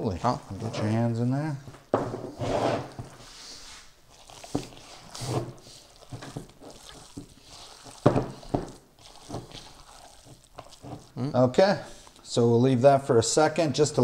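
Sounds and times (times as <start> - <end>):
hands squishing raw meat: 2.8 - 14.0.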